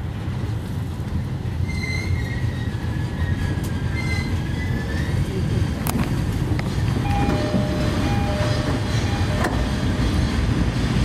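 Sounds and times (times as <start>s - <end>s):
train wheels rumbling on rail: 0.0s - 11.0s
high-pitched wheel squeal: 1.6s - 5.1s.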